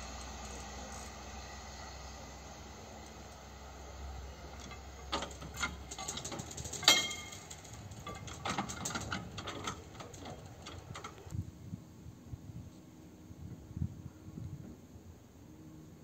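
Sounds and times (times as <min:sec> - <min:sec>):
railcar low rumble: 0:00.0 - 0:16.0
barrier mechanical clicks: 0:04.6 - 0:11.4
metallic clank with ring: 0:06.9 - 0:07.4.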